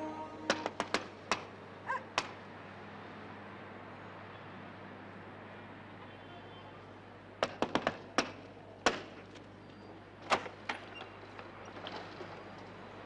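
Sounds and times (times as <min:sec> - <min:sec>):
low steady hum: 0:00.0 - 0:01.2.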